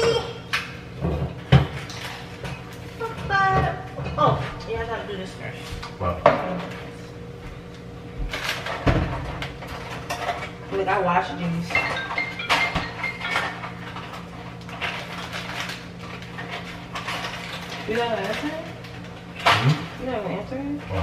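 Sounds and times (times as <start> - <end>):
steady low hum: 0.0 - 21.0
knocks and clinks: 11.7 - 14.2.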